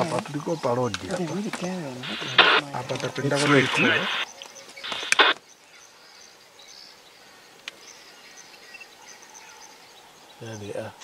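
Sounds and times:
faint bird chirps: 0.3 - 11.0
sharp click: 4.9 - 5.4.

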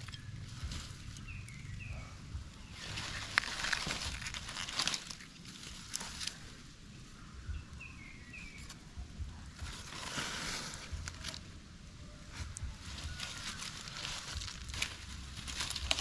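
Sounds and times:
bird chirping: 0.0 - 4.9, 5.8 - 9.9
rustling and crinkling handling: 2.6 - 6.7, 8.3 - 11.6, 12.2 - 16.0.

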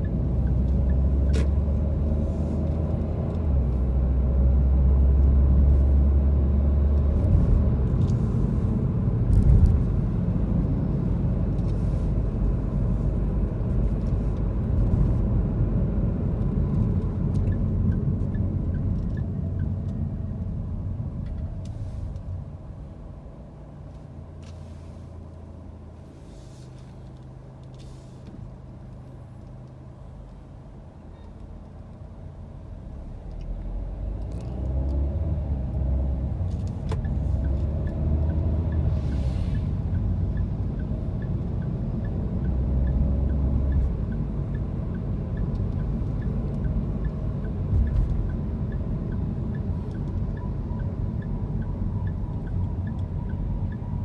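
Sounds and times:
car engine and tyre rumble: 0.0 - 54.0
faint regular ticking: 39.5 - 54.0.

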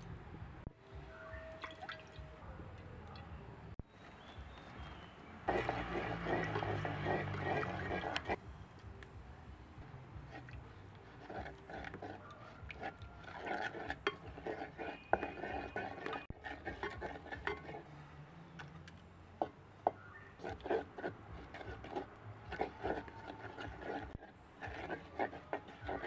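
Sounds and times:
utensils clinking against a pot: 11.2 - 17.9.

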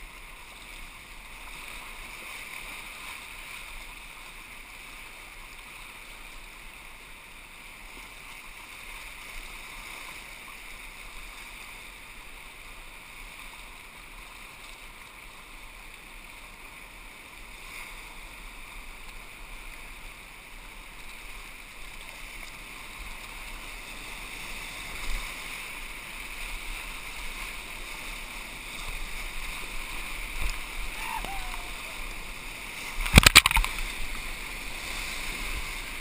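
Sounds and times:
whitewater rapids rushing: 23.0 - 36.0.

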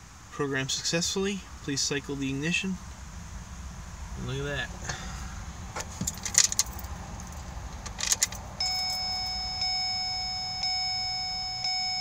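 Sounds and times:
keys jangling: 6.1 - 9.0
dashboard warning chime: 8.6 - 12.0.

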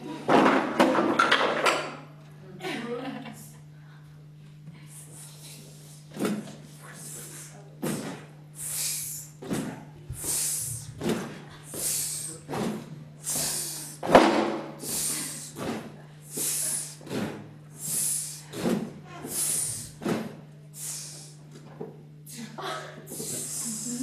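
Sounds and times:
steady low hum: 0.0 - 24.0
man's rhythmic vocal hissing: 4.8 - 21.5, 22.2 - 24.0.

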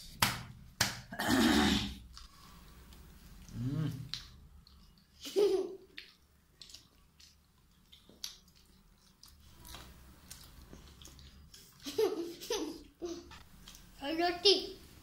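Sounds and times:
chewing and mouth clicks: 2.9 - 5.2, 5.8 - 11.8.

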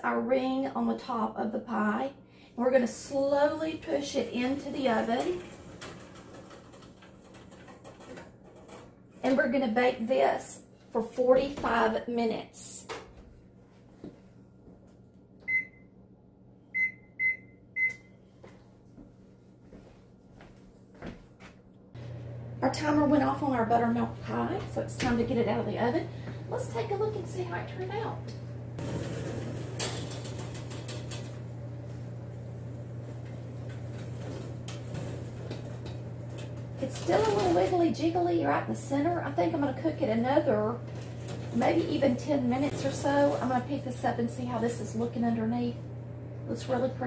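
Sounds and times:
steady low hum: 8.6 - 47.0
metal oven rack rattling: 28.8 - 31.4.

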